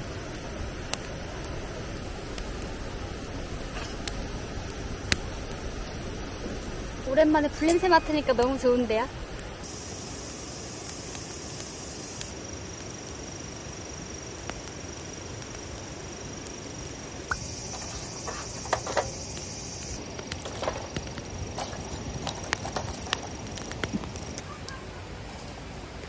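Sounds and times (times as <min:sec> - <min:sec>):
wood fire crackling: 0:00.0 - 0:26.0
sharp pops from fire: 0:03.7 - 0:04.3, 0:05.0 - 0:05.6, 0:09.6 - 0:24.8
high insect hum: 0:09.6 - 0:26.0.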